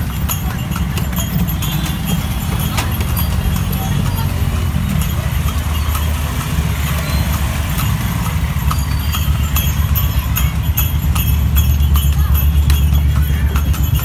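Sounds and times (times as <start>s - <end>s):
horse hooves clip-clopping on road: 0.0s - 14.0s.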